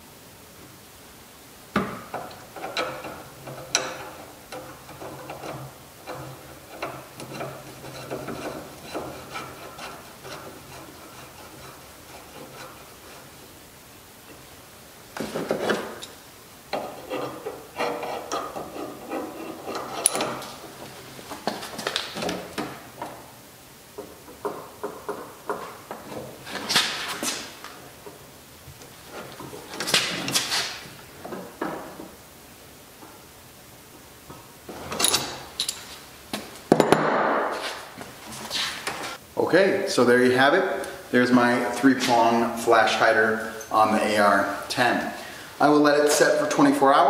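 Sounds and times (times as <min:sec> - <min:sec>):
metal clicks and knocks: 0:01.8 - 0:09.2.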